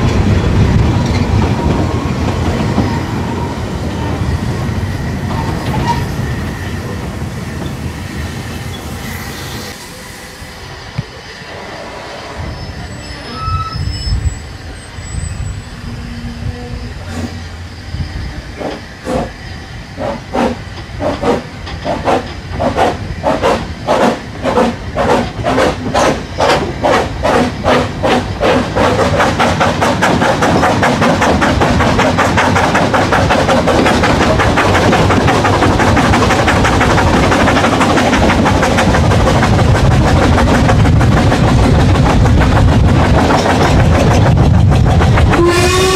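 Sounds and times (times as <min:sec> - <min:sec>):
steam locomotive exhaust chuffs: 0:14.1 - 0:45.9
carriage wheels on rails: 0:20.0 - 0:45.9.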